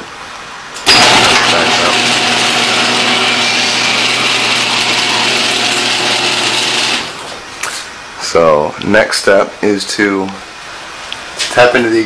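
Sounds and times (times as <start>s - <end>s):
garage door opener motor whirring: 0.8s - 7.5s.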